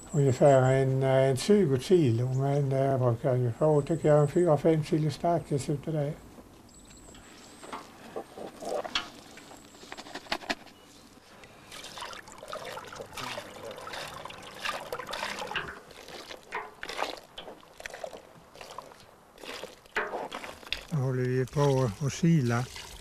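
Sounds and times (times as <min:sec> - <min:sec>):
water splashing through grated potato: 0:11.6 - 0:23.0.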